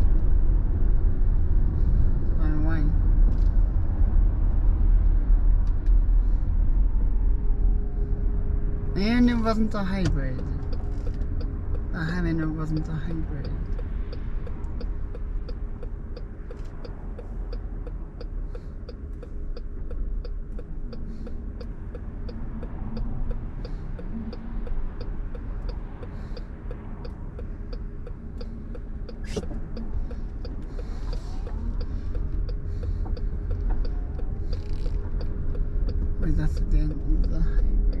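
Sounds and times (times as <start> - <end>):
engine and road rumble: 0.0 - 38.0
light regular ticking: 9.0 - 38.0.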